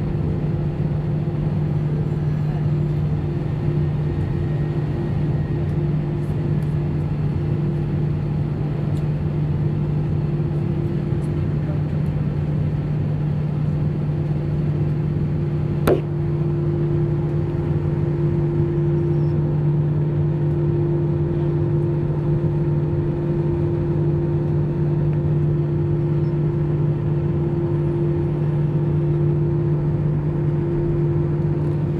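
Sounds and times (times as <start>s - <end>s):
jet engines humming: 0.0s - 31.9s
higher steady tone: 15.9s - 16.3s.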